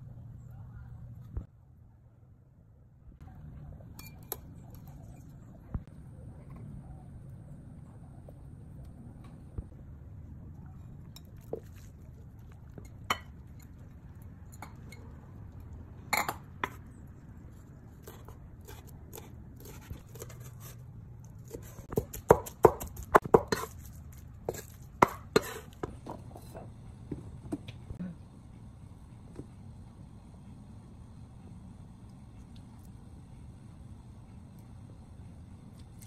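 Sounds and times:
knife chopping on wooden board: 21.9 - 23.7, 24.5 - 25.9.

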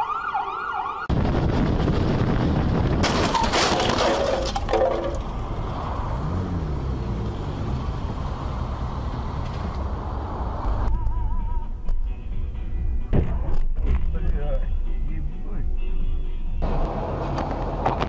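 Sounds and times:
road and engine noise: 0.0 - 18.0
crash impact: 2.9 - 5.3
scraping debris and breaking glass: 3.0 - 5.4.

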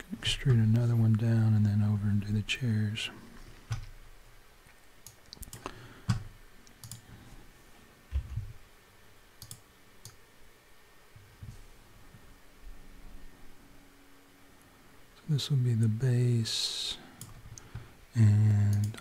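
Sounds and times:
keyboard and mouse clicks: 3.6 - 4.0, 5.0 - 7.0, 9.4 - 10.2, 18.4 - 19.0.

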